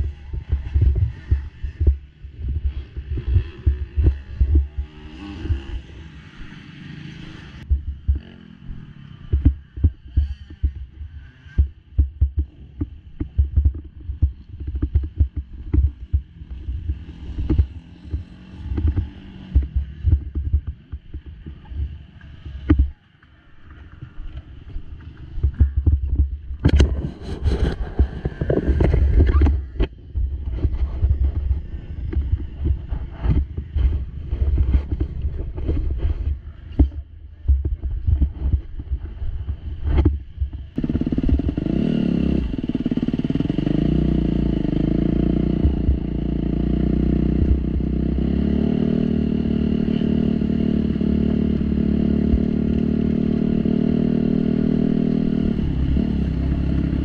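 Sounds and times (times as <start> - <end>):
wind buffeting microphone: 0.0 - 6.0, 24.8 - 48.6
thumps on helmet camera: 25.4 - 27.8.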